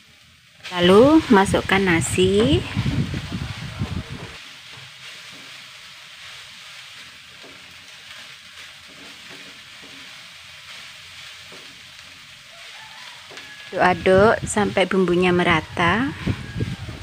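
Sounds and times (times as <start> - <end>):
rice sizzling in a wok: 0.0 - 17.0
wooden spatula scraping wok: 0.6 - 17.0
spatula tapping pan: 7.3 - 10.3, 11.4 - 12.2, 13.2 - 13.6.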